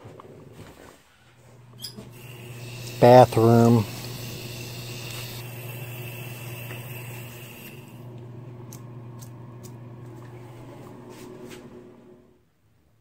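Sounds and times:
water running from tap: 1.8 - 10.1.

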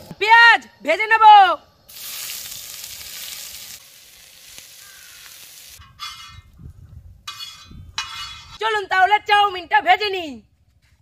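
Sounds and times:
onions sizzling in hot oil: 1.9 - 6.3
metal spatula scraping pan: 5.8 - 6.5, 7.3 - 8.6.

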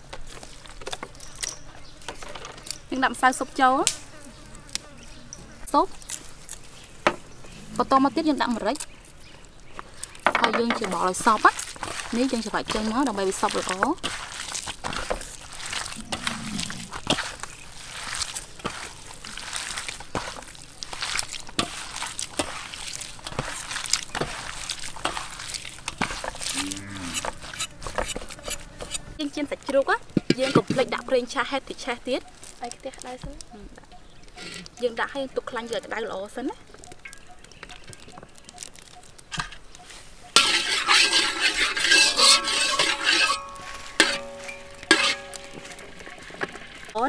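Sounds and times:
utensil scraping in metal wok: 10.7 - 32.6, 34.4 - 34.9, 39.3 - 47.0
wet squelching of meat mixing: 11.1 - 28.3.

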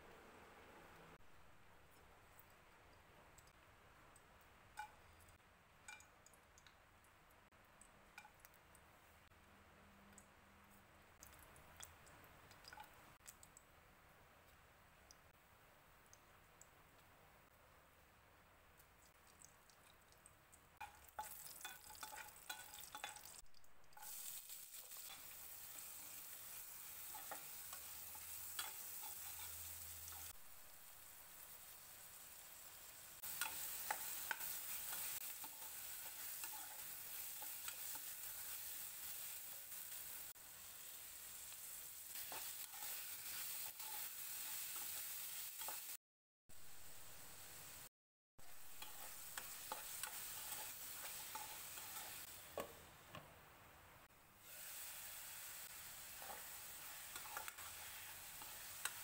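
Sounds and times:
vegetables sizzling in oil: 20.8 - 52.8, 54.4 - 59.0
spatula scraping pan: 24.0 - 30.3, 48.7 - 52.3, 56.1 - 59.0.

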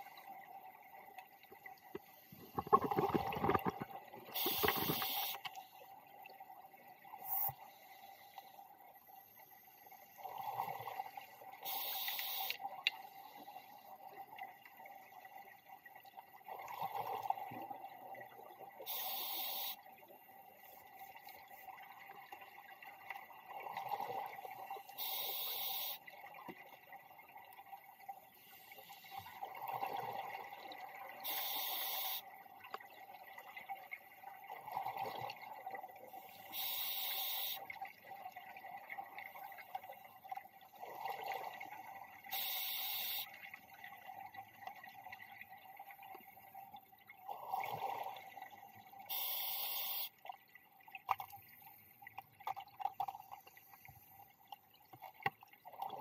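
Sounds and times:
scuba regulator breathing: 2.1 - 5.4.

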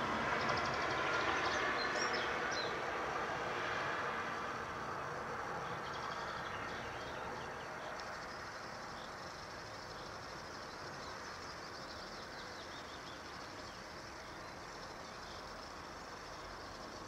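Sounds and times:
vehicle passing: 0.0 - 7.5
outdoor background noise: 0.0 - 17.0.

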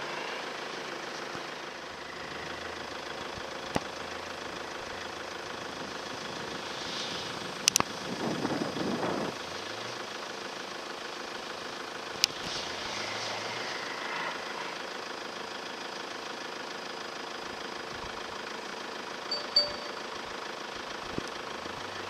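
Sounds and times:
distant vehicle engine: 0.0 - 18.6.

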